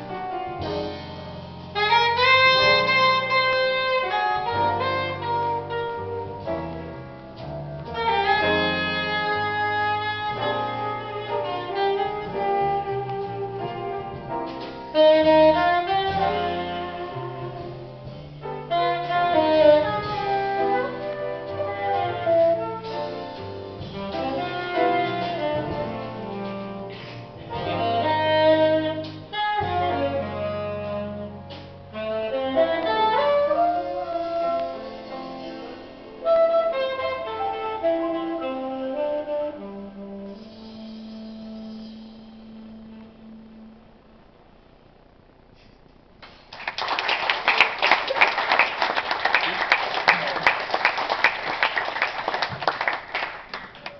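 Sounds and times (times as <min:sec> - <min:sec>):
drum kit: 0:00.0 - 0:43.8, 0:45.5 - 0:53.9
saxophone: 0:00.0 - 0:44.2
double bass: 0:00.0 - 0:46.2
grand piano: 0:00.0 - 0:53.9.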